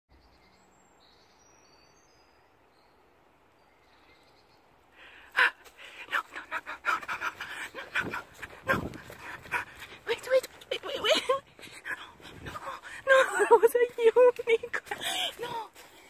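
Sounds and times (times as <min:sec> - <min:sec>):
faint bird chirps: 0:00.1 - 0:04.9
person panting: 0:05.0 - 0:13.5, 0:14.8 - 0:16.0
rustling through undergrowth: 0:05.5 - 0:16.0.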